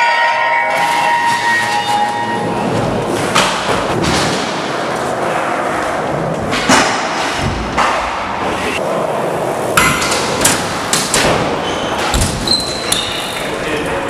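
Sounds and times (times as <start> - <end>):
skateboard wheels rolling: 1.0 - 14.0.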